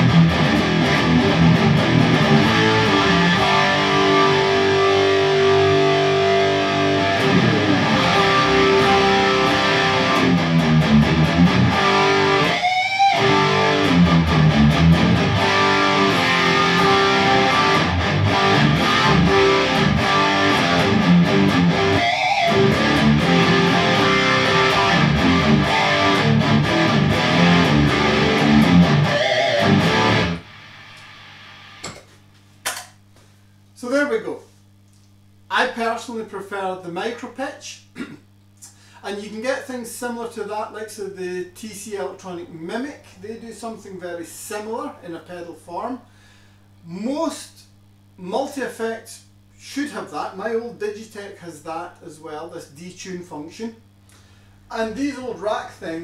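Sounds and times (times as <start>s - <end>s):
guitar sliding squeals: 0.0s - 30.5s
distorted electric guitar riffs: 0.0s - 32.0s
low amp hum: 0.0s - 56.0s.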